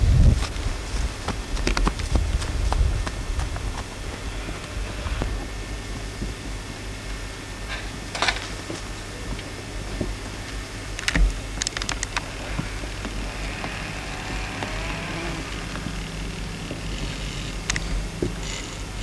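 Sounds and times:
steady low hum: 0.0s - 19.0s
sharp clicks: 11.0s - 12.3s, 17.5s - 18.7s.

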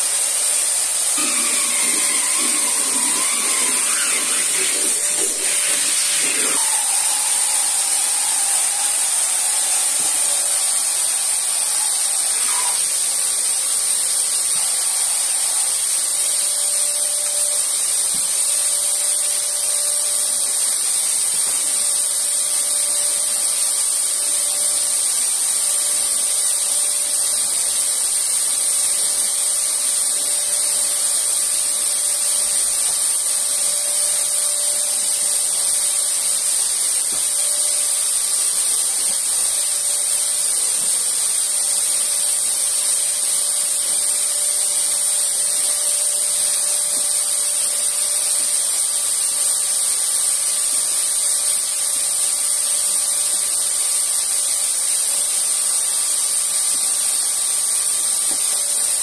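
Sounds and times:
vacuum cleaner running: 0.0s - 13.8s.

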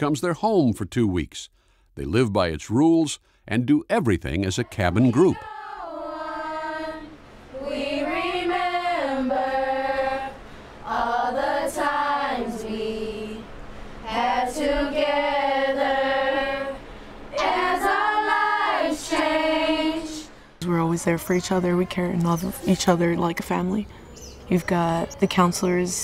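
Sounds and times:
girls singing unaccompanied: 4.5s - 20.4s.

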